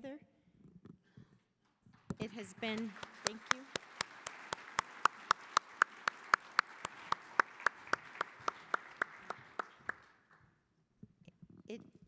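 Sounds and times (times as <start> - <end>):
close hands clapping: 2.1 - 10.5
audience applauding: 2.2 - 10.4.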